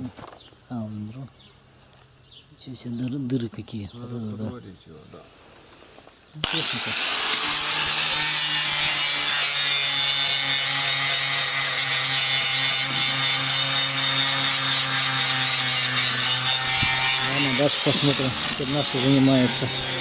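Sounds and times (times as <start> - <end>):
angle grinder grinding metal: 6.4 - 20.0.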